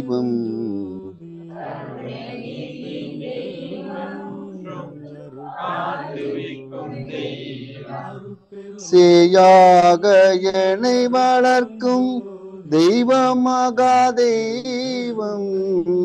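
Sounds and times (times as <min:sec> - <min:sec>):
leader singing: 0:00.0 - 0:16.0
group chanting in unison: 0:01.2 - 0:13.3.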